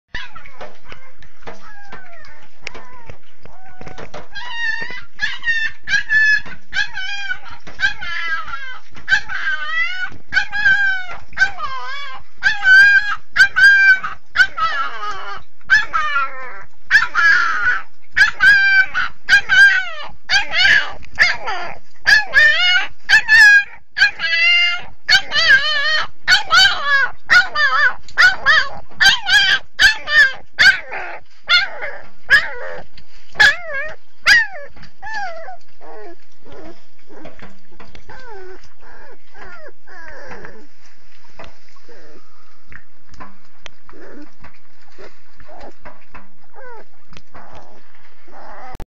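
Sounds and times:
puppy whining yelps: 0.1s - 40.7s, 45.4s - 45.8s, 46.5s - 48.8s.

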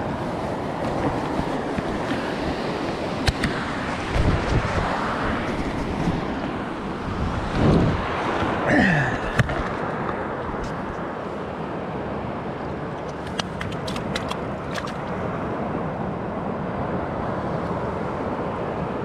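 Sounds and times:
wind: 0.0s - 19.0s.

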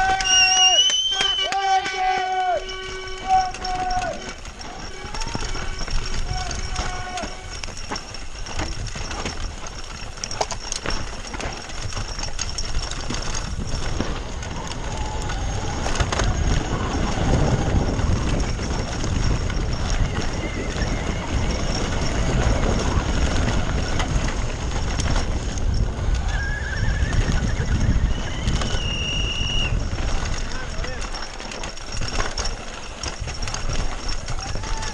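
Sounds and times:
short high squeals: 0.0s - 8.4s, 26.2s - 29.9s
bike frame and chain rattling: 0.0s - 34.9s
tyres on dirt and gravel: 0.0s - 34.9s
wind rushing over microphone: 3.5s - 34.9s.

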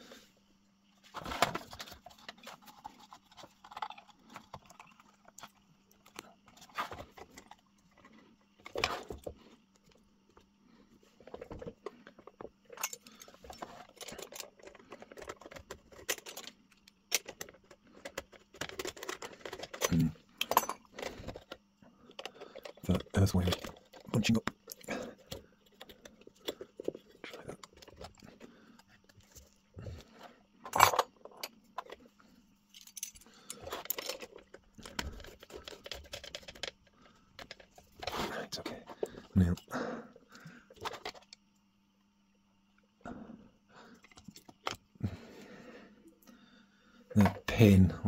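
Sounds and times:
metal parts rattling and scraping: 11.2s - 30.0s, 32.7s - 36.8s.

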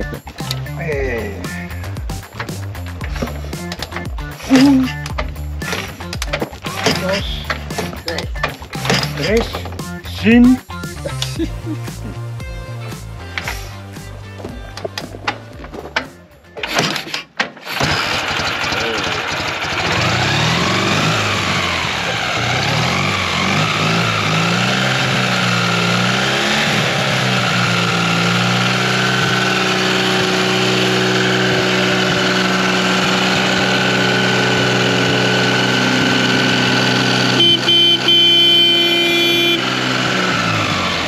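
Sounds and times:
motorcycle engine idling: 18.1s - 41.0s
loud higher tone: 36.4s - 40.2s.

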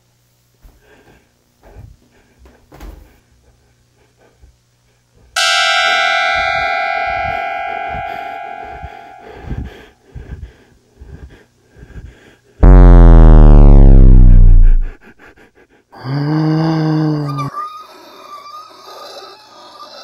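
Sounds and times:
faint low hum: 0.7s - 15.5s
horror stinger harsh sustained tone: 5.4s - 9.9s, 12.6s - 15.0s.

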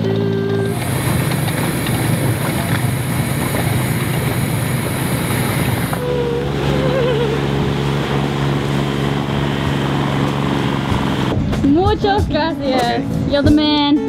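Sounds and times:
outboard motor running: 0.0s - 11.4s
water wash: 0.6s - 7.3s.

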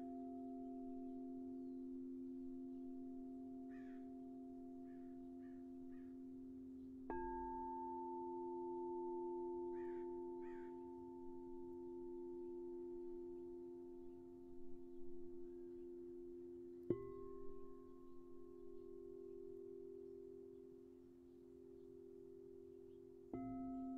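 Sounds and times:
bowl struck: 0.0s - 23.9s
singing bowls ringing: 0.0s - 23.9s
faint bird calls: 3.7s - 4.1s, 4.8s - 6.2s, 9.7s - 10.9s.

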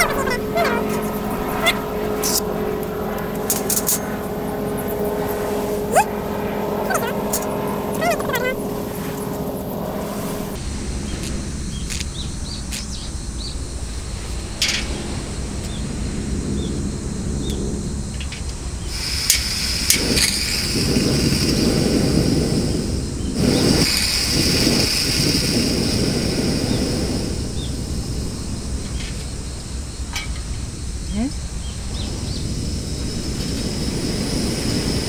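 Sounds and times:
gas hissing: 5.4s - 17.2s, 17.9s - 35.0s
flame burning with low rumble: 8.5s - 35.0s.

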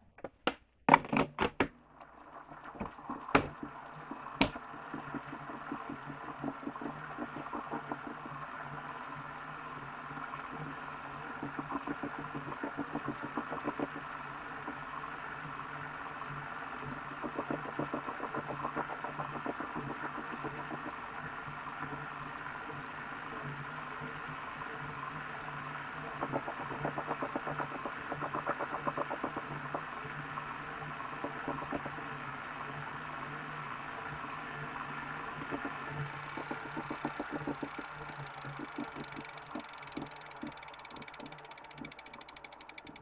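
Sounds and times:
bike trainer grinding and knocking: 2.8s - 3.7s, 4.4s - 5.9s, 36.0s - 43.0s
sharp clicks: 35.5s - 43.0s.

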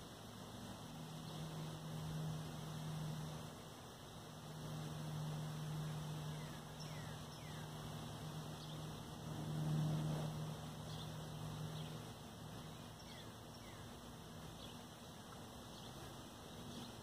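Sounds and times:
low hum: 0.0s - 17.0s
faint bird chirps: 5.7s - 7.8s, 12.6s - 14.9s.

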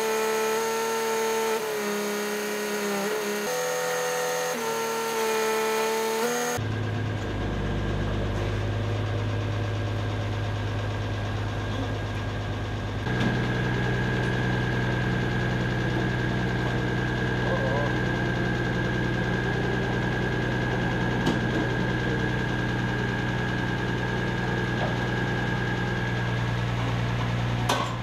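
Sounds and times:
crane truck hydraulic whine: 6.1s - 28.0s
truck engine idling hum: 6.6s - 28.0s.

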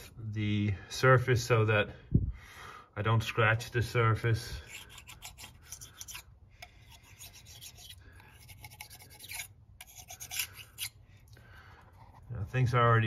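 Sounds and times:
razor blade scraping metal: 4.6s - 11.0s.

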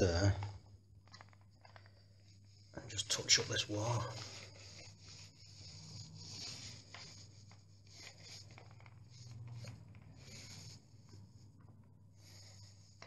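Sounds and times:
paint roller rubbing on wall: 2.8s - 11.6s.

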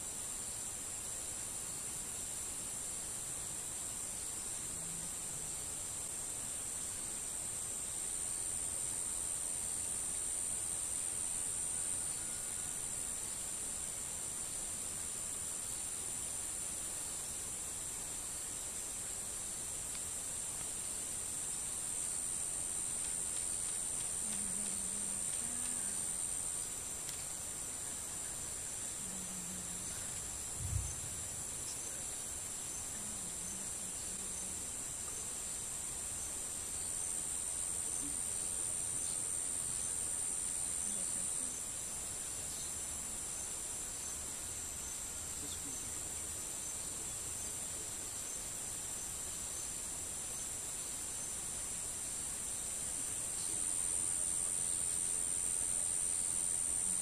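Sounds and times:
high-pitched insect chorus: 0.0s - 57.0s
low thump: 30.5s - 31.2s.

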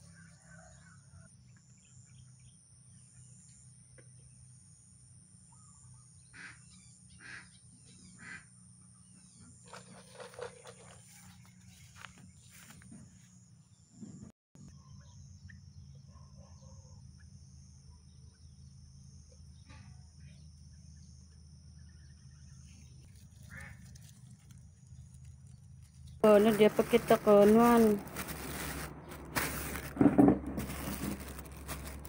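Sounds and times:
footsteps through grass: 9.7s - 13.4s, 23.0s - 32.0s.

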